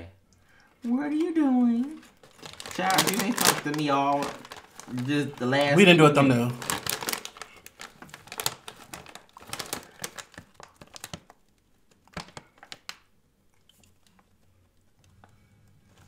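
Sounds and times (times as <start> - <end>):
plastic chip bag crinkling: 1.2 - 13.1.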